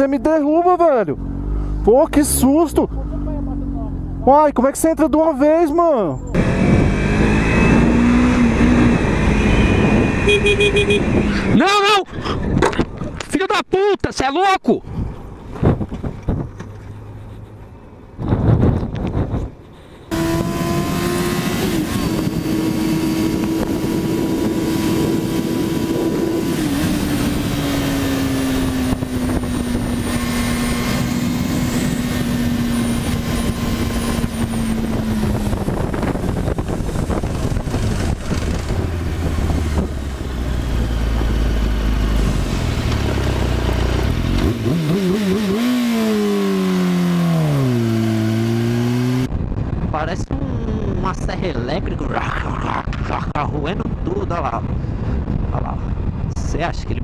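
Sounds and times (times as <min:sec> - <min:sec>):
motorcycle engine at high speed: 0:06.3 - 0:11.5, 0:20.1 - 0:49.8
wind rush: 0:06.4 - 0:13.2, 0:18.1 - 0:44.9, 0:46.6 - 0:57.0.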